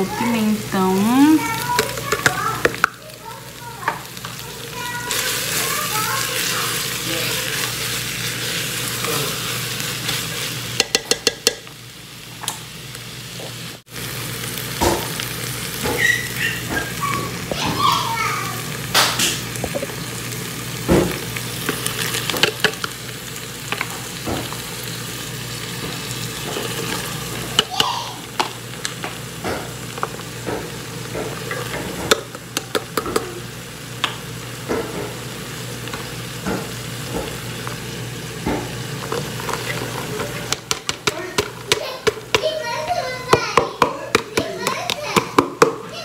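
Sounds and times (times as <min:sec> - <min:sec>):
meat sizzling in a pot: 0:00.0 - 0:46.0
clicks and knocks against pot: 0:10.8 - 0:11.7, 0:31.2 - 0:33.3, 0:38.4 - 0:42.5.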